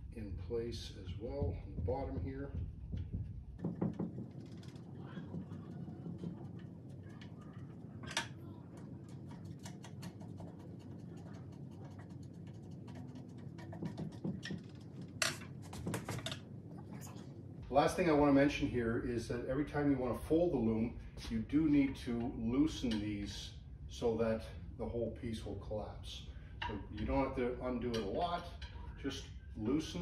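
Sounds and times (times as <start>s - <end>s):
sharp knocks: 1.4s - 4.7s.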